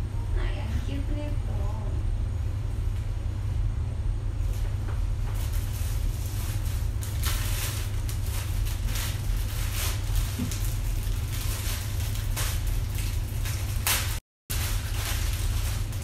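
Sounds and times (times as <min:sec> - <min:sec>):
steady low rumble: 0:00.0 - 0:16.0
plastic and paper rustling: 0:04.4 - 0:16.0.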